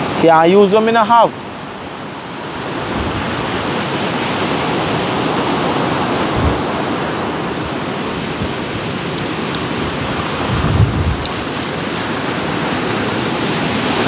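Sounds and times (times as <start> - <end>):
surf rushing: 0.0 - 14.0
knife shaving wooden stick: 3.1 - 13.6.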